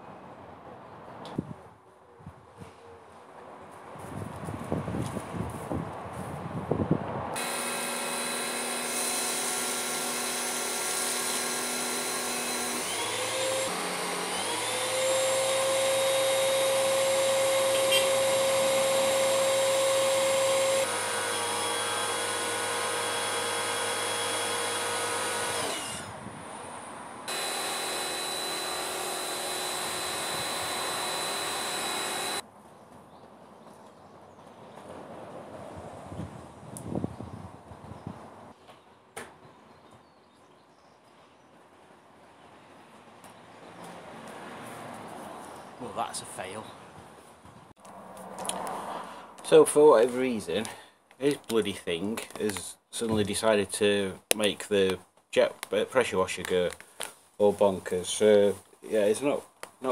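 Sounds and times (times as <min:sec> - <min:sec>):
pressure washer motor and pump: 0:07.4 - 0:26.1, 0:27.3 - 0:32.4.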